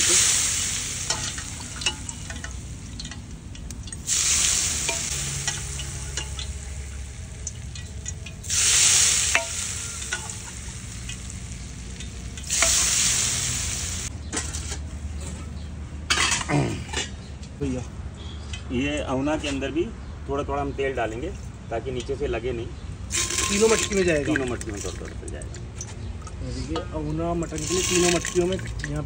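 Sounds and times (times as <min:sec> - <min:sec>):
hot oil sizzling on meat: 0:00.0 - 0:14.1, 0:23.1 - 0:25.8, 0:27.4 - 0:29.0.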